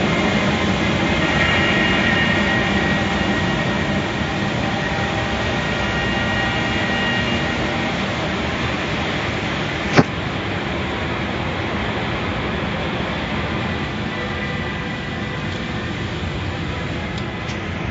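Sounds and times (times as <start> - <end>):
car wash machinery running: 0.0 - 17.9
sharp click: 9.9 - 10.1.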